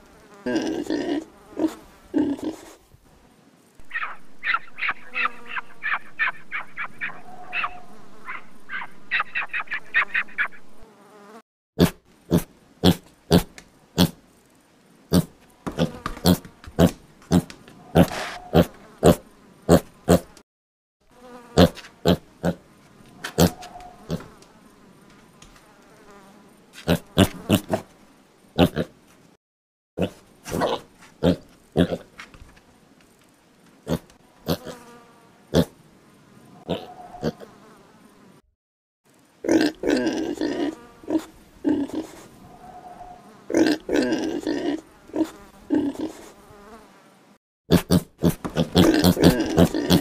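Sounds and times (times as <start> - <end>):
piglet grunting: 0.4 - 2.8, 11.8 - 14.2, 15.1 - 20.3, 23.2 - 24.3, 30.0 - 32.1, 36.7 - 37.5, 39.4 - 46.3, 47.7 - 50.0
steady hiss: 1.2 - 4.5, 12.0 - 15.7
piglet squeaking: 3.8 - 10.7.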